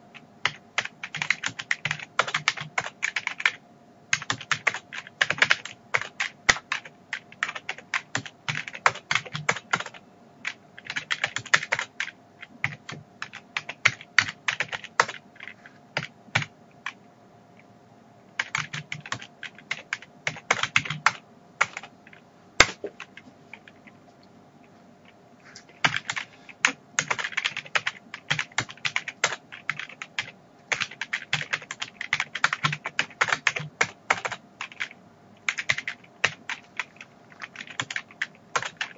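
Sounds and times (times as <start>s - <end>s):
keyboard typing clicks: 18.4s - 24.0s.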